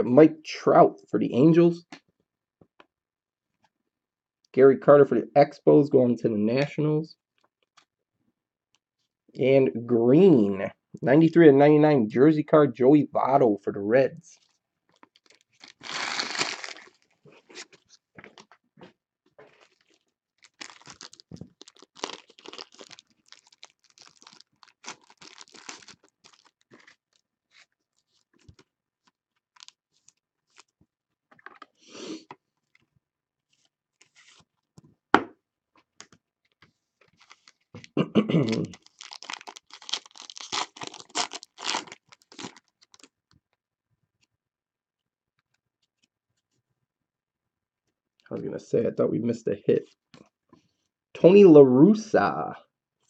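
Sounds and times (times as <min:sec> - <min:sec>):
cards rustling: 0:14.4 - 0:18.6, 0:19.5 - 0:30.7, 0:36.0 - 0:37.8, 0:38.7 - 0:43.1
foil wrapper crinkling and tearing: 0:14.5 - 0:18.0, 0:19.5 - 0:30.7, 0:37.0 - 0:37.8, 0:38.5 - 0:43.2.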